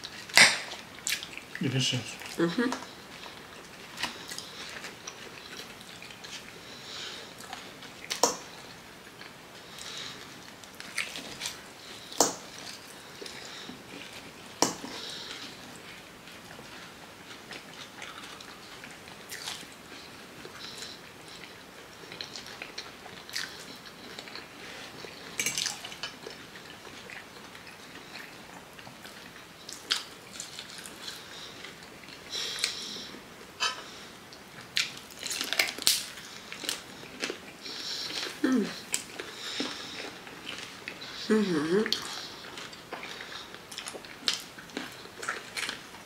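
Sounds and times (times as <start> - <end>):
wet chewing and biting: 34.6 - 41.2.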